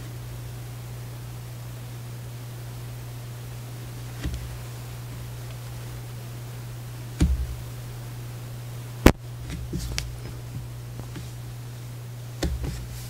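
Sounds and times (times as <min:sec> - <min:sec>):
low hum: 0:00.0 - 0:13.0.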